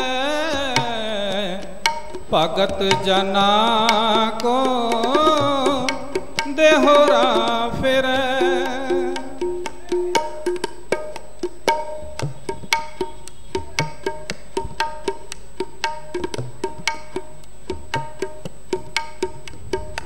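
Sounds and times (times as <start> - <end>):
person singing: 0.0 - 10.4
tabla playing: 0.0 - 20.0.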